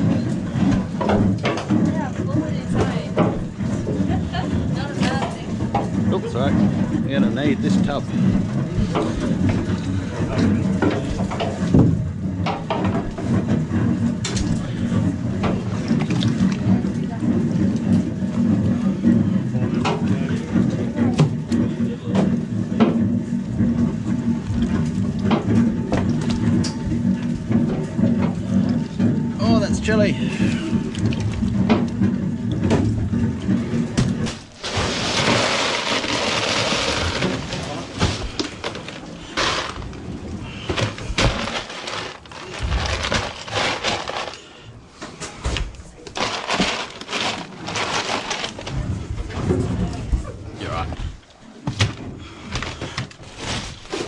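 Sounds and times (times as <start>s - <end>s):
boat engine humming: 0.0s - 52.5s
fish thudding in ice box: 34.0s - 44.5s, 46.1s - 48.8s.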